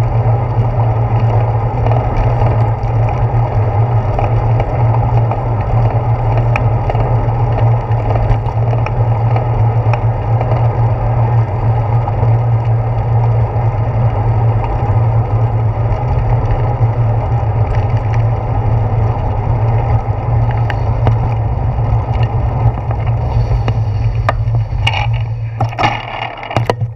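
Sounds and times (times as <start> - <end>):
tyre rumble on asphalt: 0.0 - 26.9
small clicks and rattles: 0.3 - 26.9.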